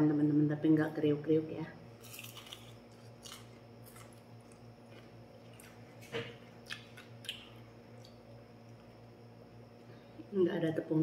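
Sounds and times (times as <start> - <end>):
person chewing wetly: 2.0 - 9.0.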